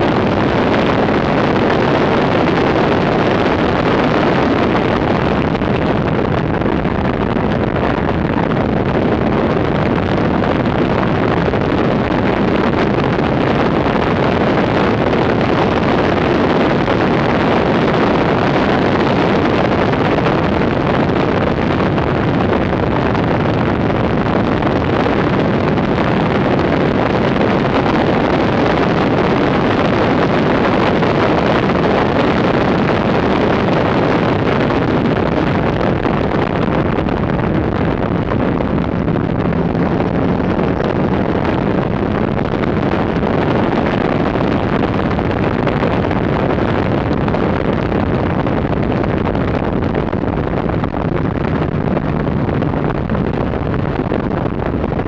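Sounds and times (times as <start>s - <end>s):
wind buffeting microphone: 0.0s - 55.0s
car engine: 35.9s - 43.6s.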